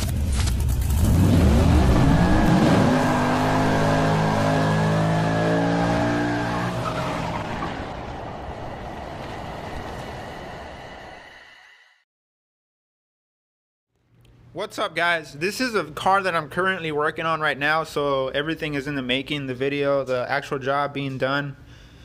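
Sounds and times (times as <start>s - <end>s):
car engine revving hard: 0.9s - 8.1s.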